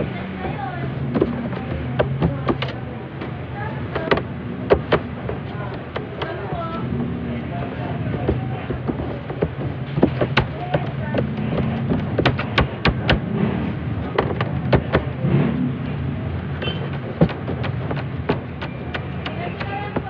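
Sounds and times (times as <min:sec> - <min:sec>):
dough tapping on metal table: 0:08.2 - 0:13.3.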